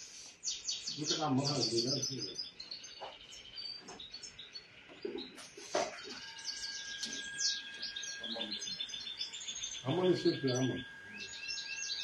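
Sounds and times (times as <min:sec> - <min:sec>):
small birds chirping: 0:00.0 - 0:12.0
steady high tone: 0:05.8 - 0:12.0.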